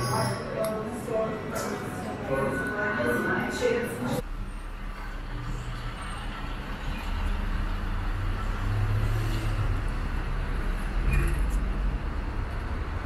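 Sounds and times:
vehicle engine rumbling past: 4.8 - 13.0.

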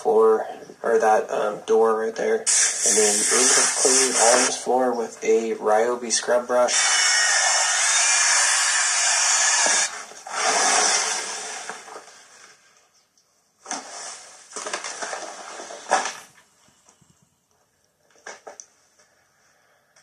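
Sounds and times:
rustles: 11.8 - 19.2.

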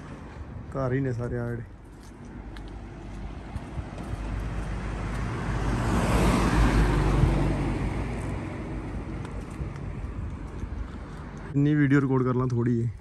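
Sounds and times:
car driving past: 4.1 - 9.2.

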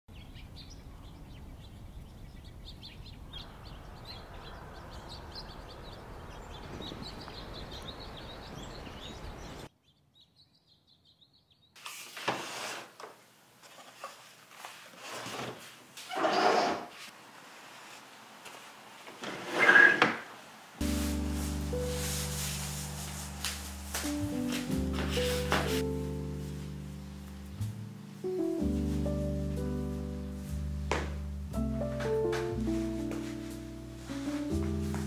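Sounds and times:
small birds chirping: 0.1 - 11.8
outdoor background noise: 0.1 - 28.5.

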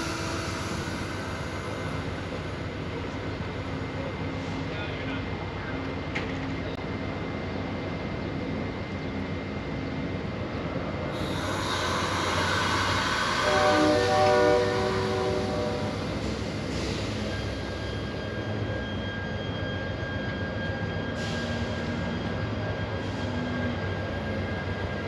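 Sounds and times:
high-pitched wheel and rail noise: 0.0 - 4.6, 10.8 - 25.0
train wheels rumbling on rail: 0.0 - 25.0
train horn chord: 13.2 - 16.3.

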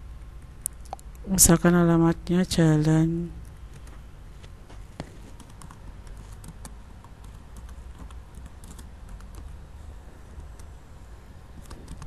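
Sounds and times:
steady low hum: 0.0 - 12.0
keyboard keystroke clicks: 11.6 - 12.0.

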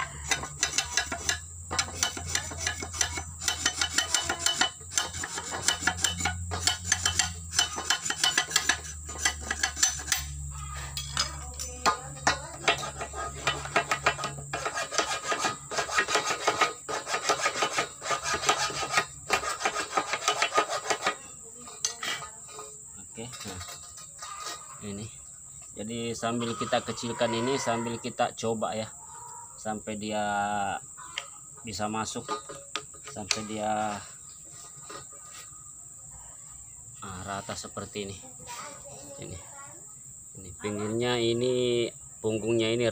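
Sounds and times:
knife scraping wood: 0.2 - 10.3, 12.6 - 21.2, 23.3 - 24.8.

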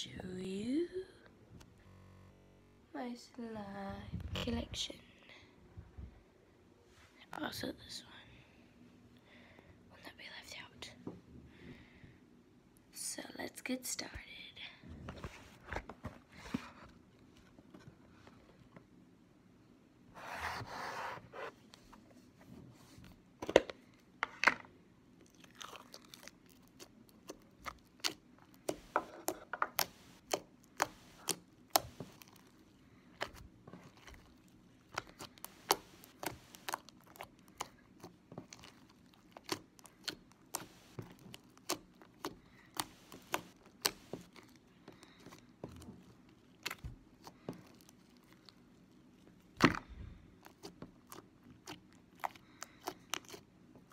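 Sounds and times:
slime clicking and popping: 26.6 - 32.4.

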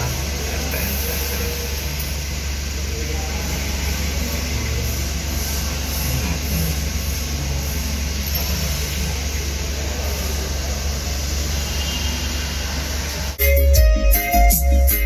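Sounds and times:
music: 13.4 - 15.0.

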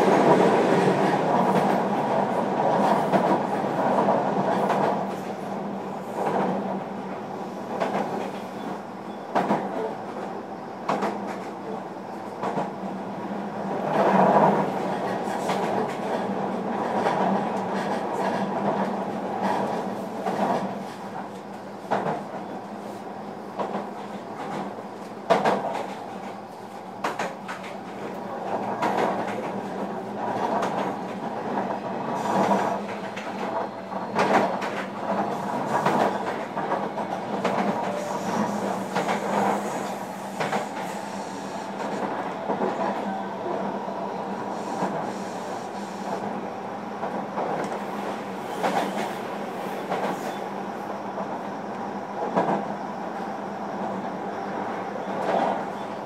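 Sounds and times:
train wheels rumbling on rail: 0.0 - 56.0
clacks over rail joints: 10.8 - 11.6, 13.9 - 22.4, 23.6 - 26.4, 27.0 - 41.0.

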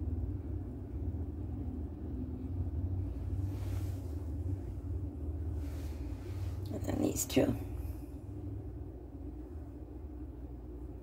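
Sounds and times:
faint hum: 0.0 - 11.0
low background rumble: 0.0 - 11.0
soft rustle: 3.0 - 8.4.

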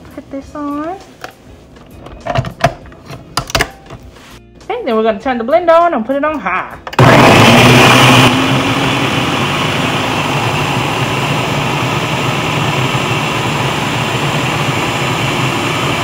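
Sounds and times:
blender running on high: 7.0 - 16.0.

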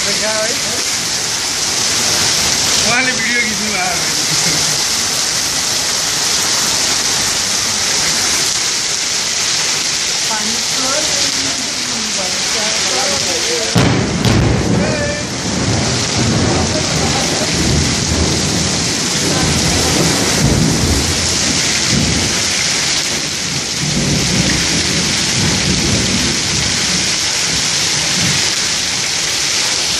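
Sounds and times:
heavy rain and hail on rooftops: 0.0 - 29.9
low rumbling thunder: 12.8 - 28.6.

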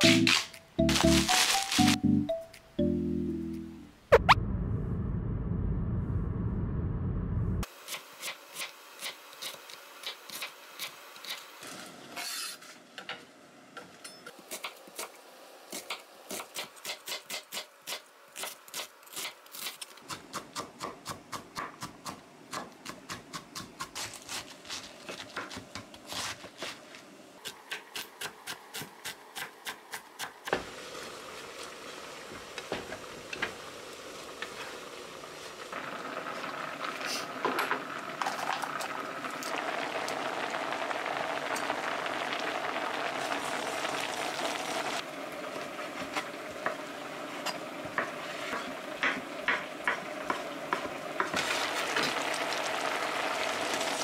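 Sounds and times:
pot hissing on stove: 30.5 - 45.1.

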